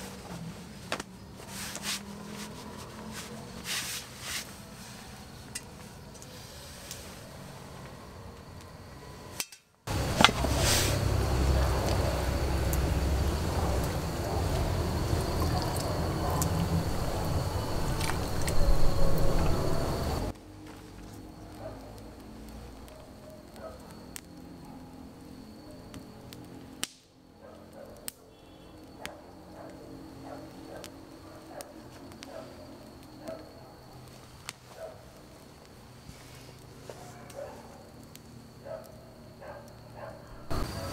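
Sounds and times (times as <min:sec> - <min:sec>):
campfire crackling and popping: 0:00.0 - 0:40.9
high insect trill: 0:00.0 - 0:40.9
steady low rumble: 0:09.9 - 0:20.4.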